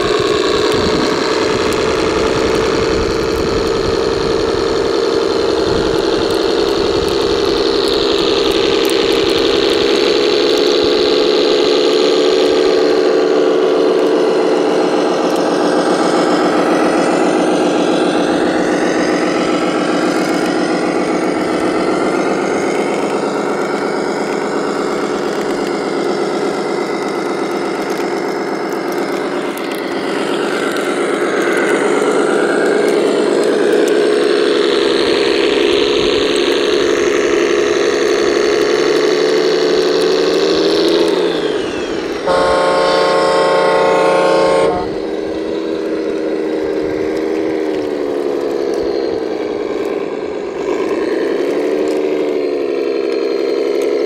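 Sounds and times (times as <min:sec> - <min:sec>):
electronic diesel engine sound: 0:00.0 - 0:54.0
horn sounding: 0:42.2 - 0:45.5.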